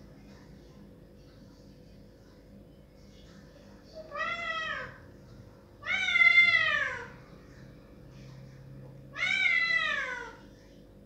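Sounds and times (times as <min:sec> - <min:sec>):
cat meowing loudly: 0:04.1 - 0:05.0, 0:05.8 - 0:07.1, 0:09.1 - 0:10.4.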